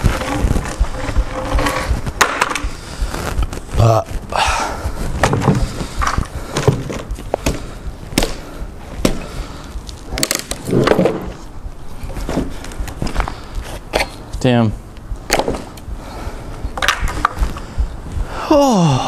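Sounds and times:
axe chopping wood: 5.2 - 8.4, 9.0 - 9.3, 15.3 - 15.7.

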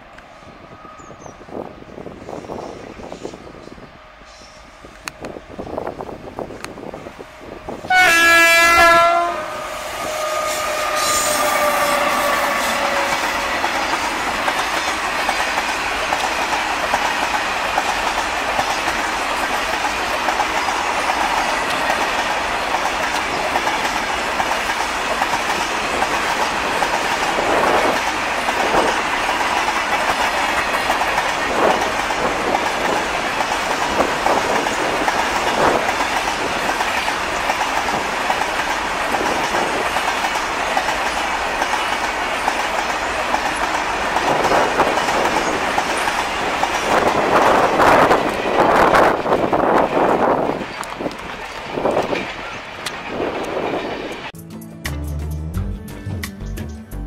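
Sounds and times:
train clanks: 0.0 - 54.4
locomotive horn: 7.8 - 14.1
train wheels clickety-clack: 10.0 - 54.3.

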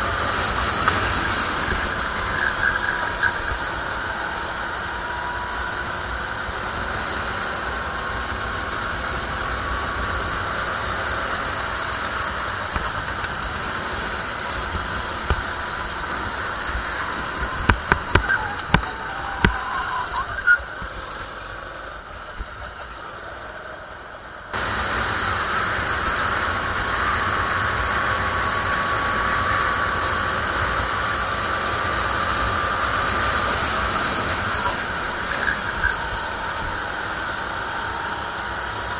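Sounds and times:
kart engine running: 0.0 - 38.9
sharp knocks: 17.4 - 19.6.

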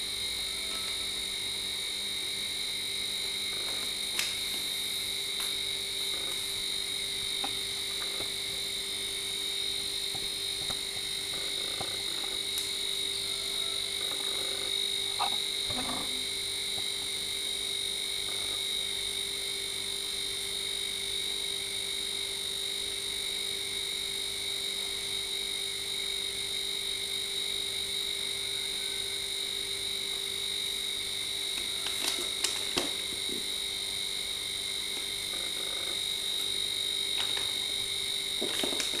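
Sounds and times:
chorus of calling animals: 13.2 - 16.0.

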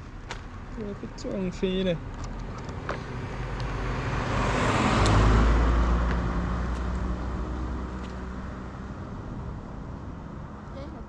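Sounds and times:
rushing whoosh passing by: 3.0 - 10.6.

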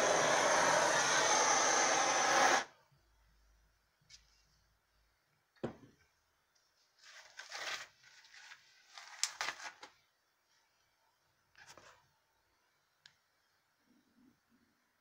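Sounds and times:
knock: 5.6 - 6.0
rustling and scraping handling: 6.7 - 10.0.

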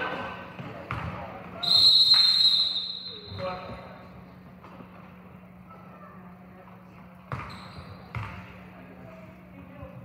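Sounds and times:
basketball bouncing on gym floor: 0.6 - 1.6, 7.3 - 8.6.

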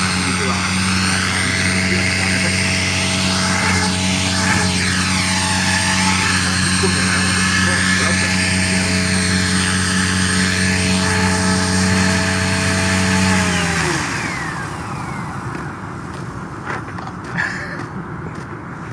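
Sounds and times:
rc helicopter motor whine: 0.0 - 17.2.

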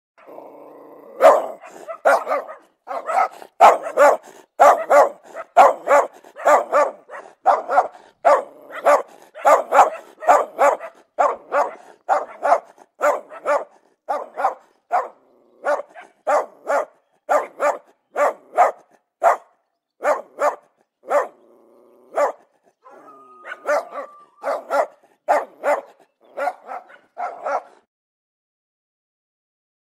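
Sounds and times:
dog barking aggressively: 1.1 - 27.9
dog whining: 21.4 - 24.8.

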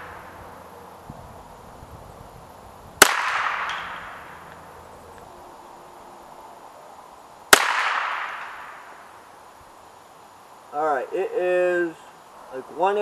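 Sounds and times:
rifle shots with echo: 3.0 - 4.4, 7.5 - 8.9.

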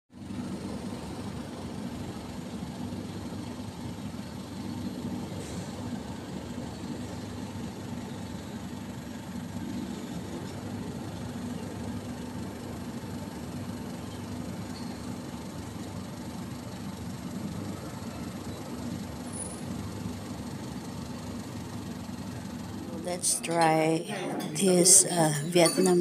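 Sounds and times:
city traffic hum: 0.1 - 26.0.

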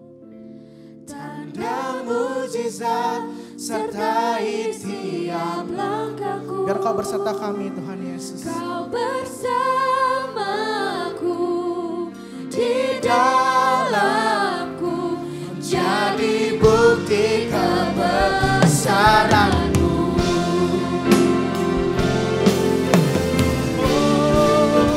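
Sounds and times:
singers singing gospel song: 1.1 - 24.9
band accompaniment: 16.2 - 24.9.

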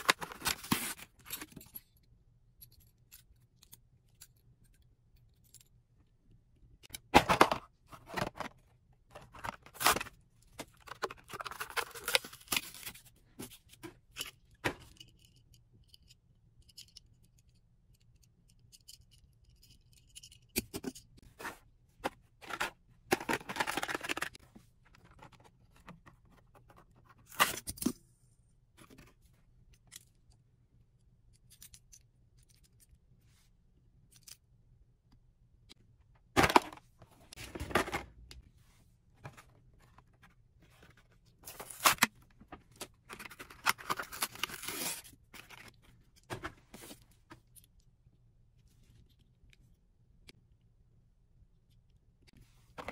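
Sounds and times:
packaging scraping and tearing: 43.1 - 45.6.

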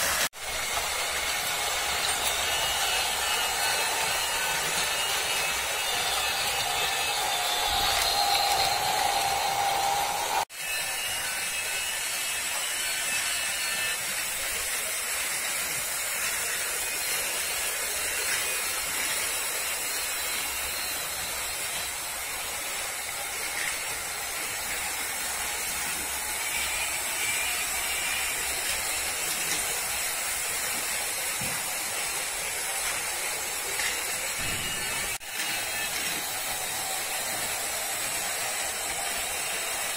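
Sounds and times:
toy train motors whirring: 0.0 - 39.9.

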